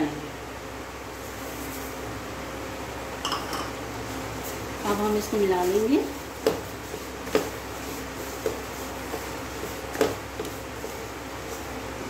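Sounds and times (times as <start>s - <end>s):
spatula stirring in a pan: 4.0s - 12.0s.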